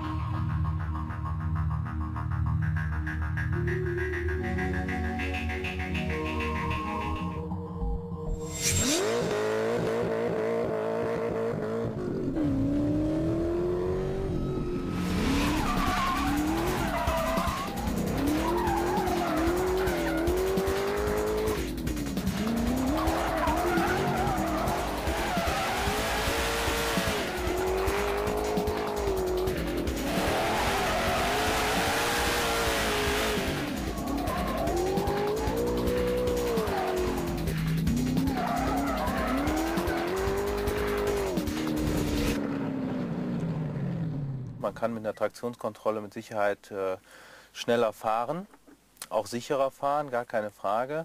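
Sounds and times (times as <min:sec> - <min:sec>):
car engine revving hard: 0:08.8 - 0:44.2
tyres squealing: 0:15.4 - 0:20.6, 0:22.8 - 0:26.2.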